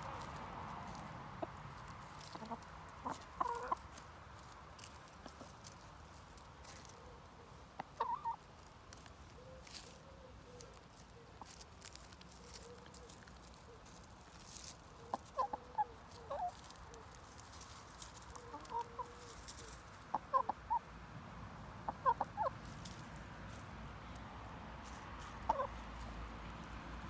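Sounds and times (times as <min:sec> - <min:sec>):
hens clucking softly: 0:01.4 - 0:04.0, 0:06.6 - 0:09.0, 0:09.6 - 0:20.9, 0:21.8 - 0:22.9, 0:25.2 - 0:26.1.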